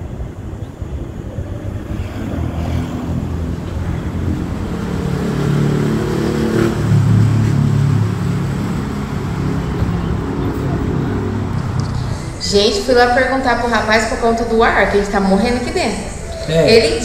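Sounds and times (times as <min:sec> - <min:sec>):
vehicle engine running: 0:00.0 - 0:15.9.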